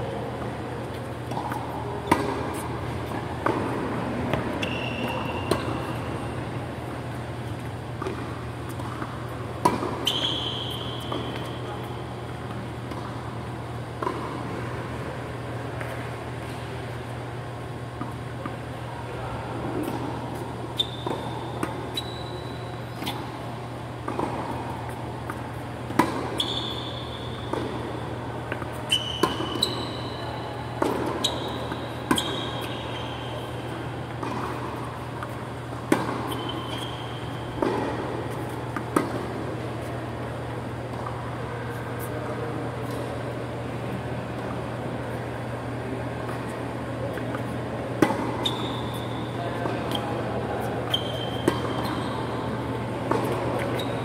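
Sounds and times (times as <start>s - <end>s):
low hum of fans: 0.0s - 54.0s
shoes squeaking on court: 0.4s - 14.7s, 17.6s - 42.2s, 46.3s - 54.0s
tennis ball struck by rackets: 1.3s - 5.9s, 8.0s - 10.1s, 24.1s - 26.4s, 30.8s - 31.4s, 34.1s - 36.9s, 37.5s - 39.4s, 48.0s - 48.5s, 51.4s - 52.0s, 53.0s - 53.8s.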